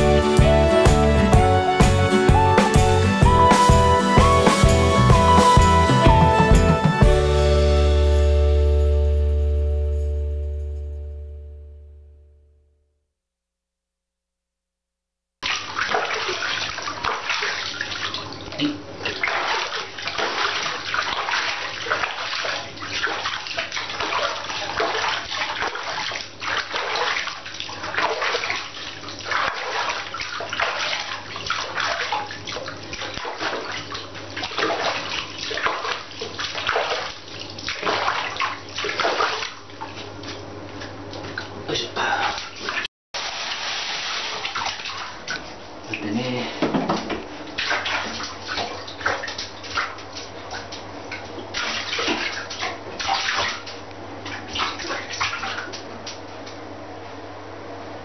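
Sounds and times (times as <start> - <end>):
water splashing in bathtub: 15.4 - 56.7.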